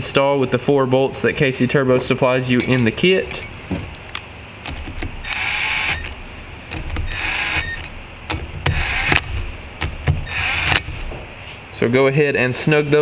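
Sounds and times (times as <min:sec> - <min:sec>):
power tool motor whine: 0:05.2 - 0:06.2, 0:07.0 - 0:07.9, 0:08.6 - 0:09.4, 0:10.2 - 0:11.1.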